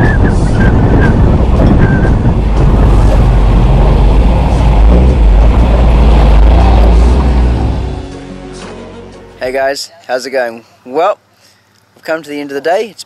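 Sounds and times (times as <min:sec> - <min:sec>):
wind buffeting microphone: 0:00.0 - 0:07.6
vehicle engine and tyre rumble: 0:00.0 - 0:08.7.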